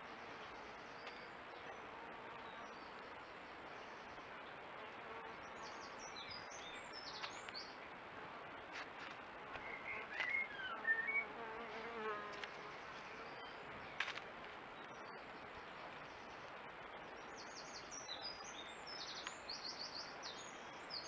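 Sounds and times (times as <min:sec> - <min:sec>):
microphone hiss: 0:00.0 - 0:21.0.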